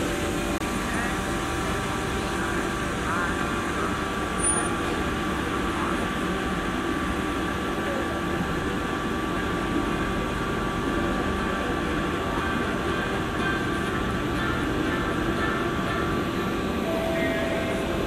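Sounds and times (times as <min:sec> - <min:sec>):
air conditioning hum: 0:00.0 - 0:18.0
faint high tones: 0:16.8 - 0:18.0.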